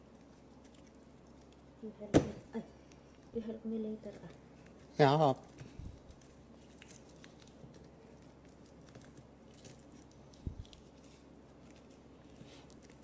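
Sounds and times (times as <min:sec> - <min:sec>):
hands rustling with string: 0:00.0 - 0:13.0
dull thump: 0:02.1 - 0:02.4.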